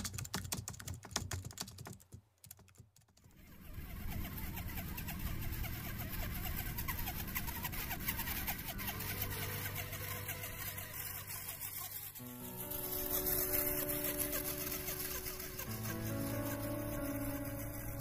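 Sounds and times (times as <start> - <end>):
rc car motor whirring: 3.4 - 18.0.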